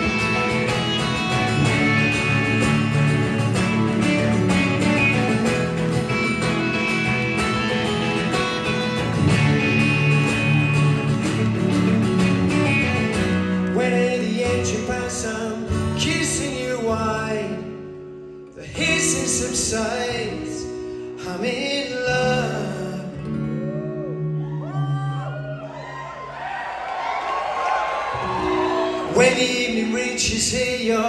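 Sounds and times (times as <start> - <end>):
live rock band playing: 0.0 - 16.3
acoustic guitar strumming: 0.0 - 24.9, 28.2 - 31.0.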